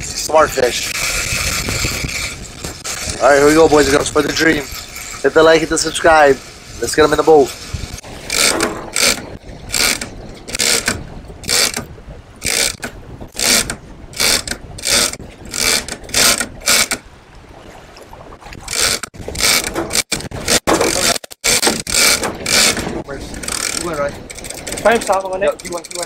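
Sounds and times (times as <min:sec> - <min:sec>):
fishing reel gear whirring: 0:08.3 - 0:12.8, 0:13.4 - 0:17.0, 0:18.7 - 0:20.1, 0:21.4 - 0:26.0.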